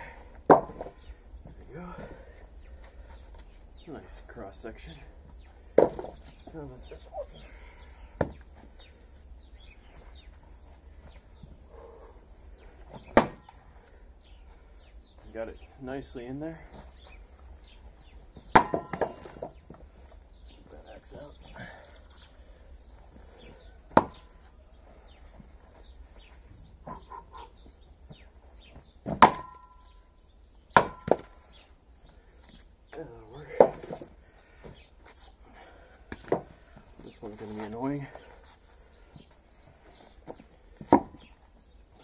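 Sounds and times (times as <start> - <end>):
small birds chirping: 0.0 - 42.0
axe striking a log: 0.4 - 1.0, 13.0 - 13.6, 18.5 - 19.5, 23.9 - 24.2, 29.0 - 29.9, 30.7 - 31.4, 40.9 - 41.2.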